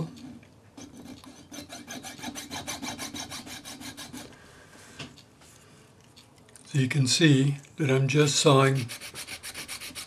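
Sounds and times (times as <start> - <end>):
saw cutting metal wire: 0.8 - 4.2.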